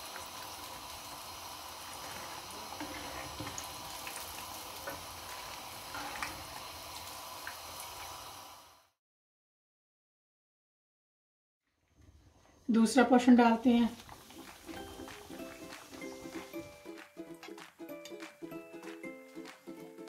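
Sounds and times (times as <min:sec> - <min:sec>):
oil crackling and popping: 0:00.0 - 0:08.4, 0:14.0 - 0:19.0
hot oil sizzling: 0:00.0 - 0:09.0, 0:12.0 - 0:19.0.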